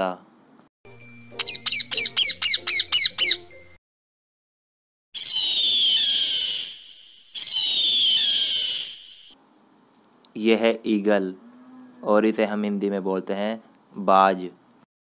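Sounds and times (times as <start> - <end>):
high eagle calls: 1.4 - 3.4, 5.2 - 9.4
parrot squawking: 1.4 - 3.6, 5.2 - 6.8, 7.4 - 9.3.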